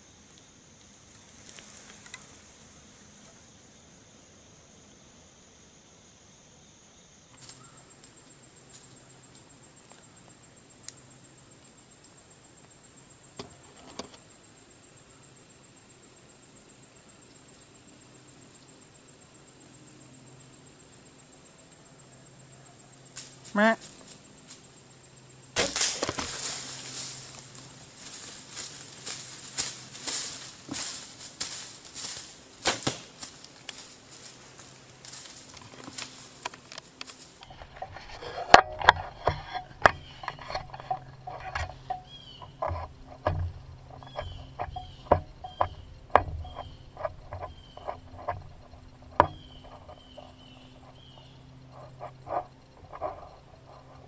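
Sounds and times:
scrapes and taps climbing down tree: 1.1s - 2.4s, 13.4s - 14.2s, 25.6s - 54.0s
sharp knocks on tree stand: 25.6s - 26.6s, 32.6s - 33.3s, 42.5s - 48.5s, 49.1s - 49.9s
deer running through dry leaves: 25.6s - 37.4s
bow shot: 32.6s - 33.2s.

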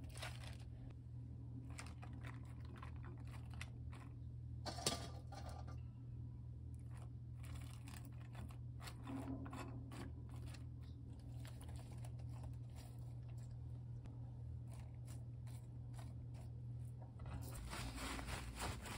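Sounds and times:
bean sprouts crackling and rustling: 0.0s - 0.8s, 11.1s - 13.7s, 17.5s - 18.9s
steady low hum: 0.0s - 18.9s.

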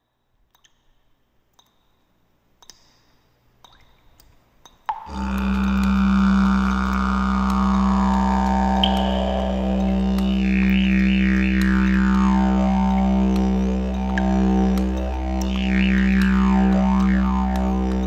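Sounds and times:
faint drip-like clicks: 0.0s - 18.0s
deep droning instrument: 4.9s - 18.0s.

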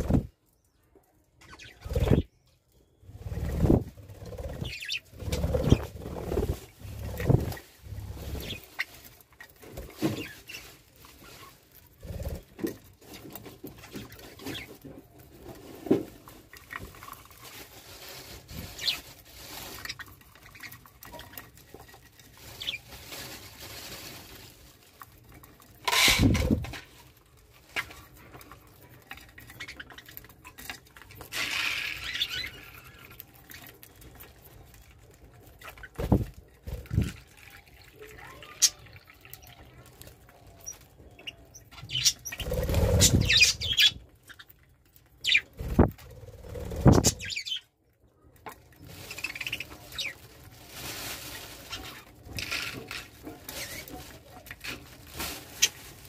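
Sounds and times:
wing flutters: 1.5s - 2.3s, 3.0s - 8.9s, 12.0s - 12.6s, 35.6s - 37.3s, 41.8s - 44.1s, 45.2s - 47.6s
budgerigars chirping: 41.3s - 44.0s.

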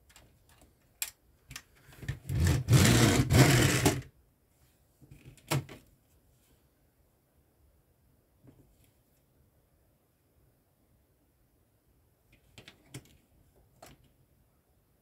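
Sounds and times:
plastic pieces rubbing and scraping: 1.9s - 4.1s.

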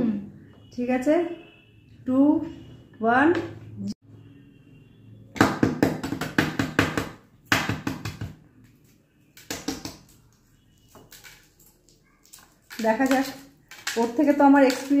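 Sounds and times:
eggshells cracked by tapping: 9.4s - 10.2s, 12.2s - 15.0s.

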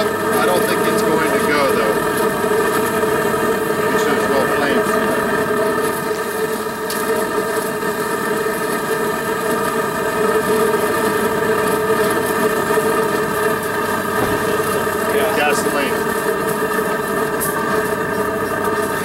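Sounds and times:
mechanical drone: 0.0s - 19.0s.

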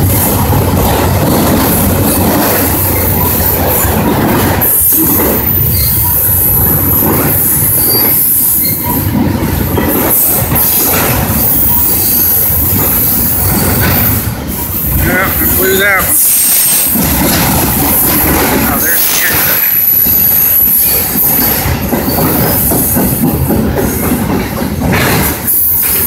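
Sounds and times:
train wheels rumbling on rail: 0.0s - 26.0s
high-pitched wheel squeal: 4.7s - 6.5s, 7.4s - 9.1s.

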